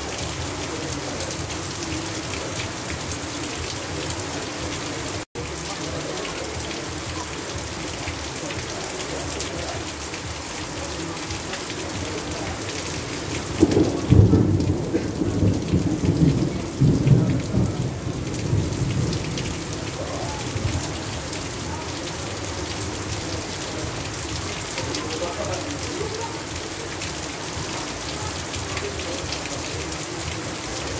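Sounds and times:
heavy rain pouring: 0.0s - 30.9s
thunder rumbling: 13.2s - 21.6s.

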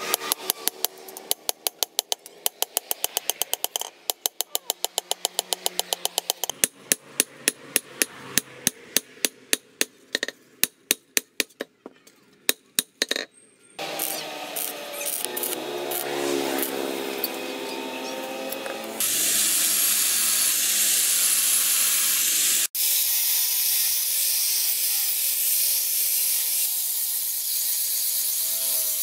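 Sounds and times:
arc welding crackling hiss: 13.9s - 17.3s, 19.0s - 25.5s.

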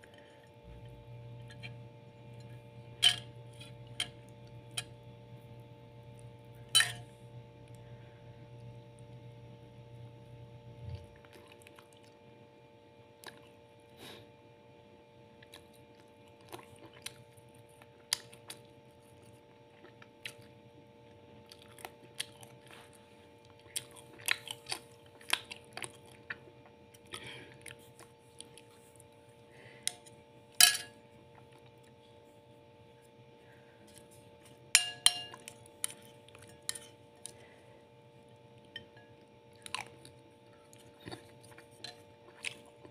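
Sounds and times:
spoon clinking on plate: 3.0s - 3.3s, 6.7s - 7.1s, 30.6s - 31.0s, 34.8s - 35.5s
person chewing food: 10.8s - 12.2s, 13.2s - 13.6s, 15.4s - 30.2s, 31.0s - 32.3s, 33.0s - 42.9s.

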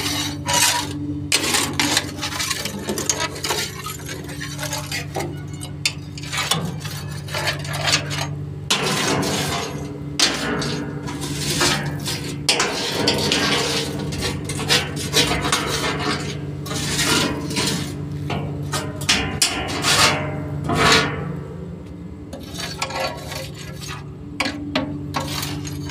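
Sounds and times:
diesel engine running: 0.0s - 25.9s
tool scraping and clanking on steel: 0.0s - 25.9s.

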